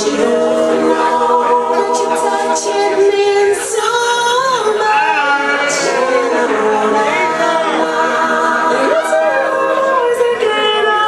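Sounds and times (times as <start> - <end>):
person singing sustained notes: 0.0 - 10.4.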